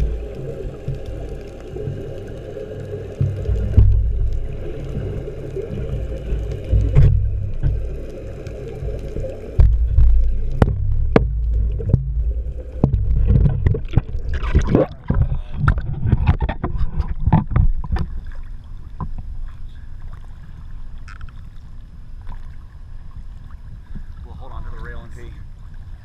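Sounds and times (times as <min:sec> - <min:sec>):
low underwater rumble: 0:00.0 - 0:26.0
water splashing and sloshing: 0:00.0 - 0:26.0
wind: 0:00.0 - 0:26.0.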